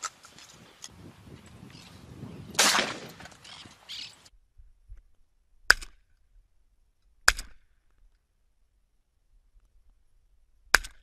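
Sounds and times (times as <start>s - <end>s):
shotgun shots: 2.6s - 3.4s.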